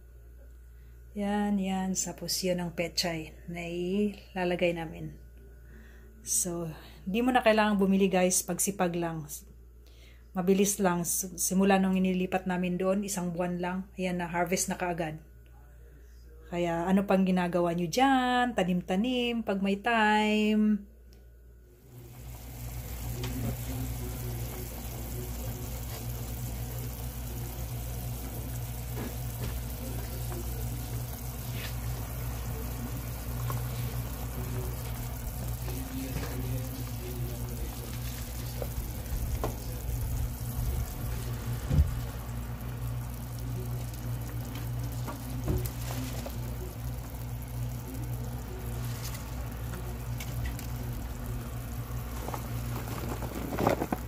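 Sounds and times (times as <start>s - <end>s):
low hum: 21.6s - 54.0s
pot hissing on stove: 21.8s - 54.0s.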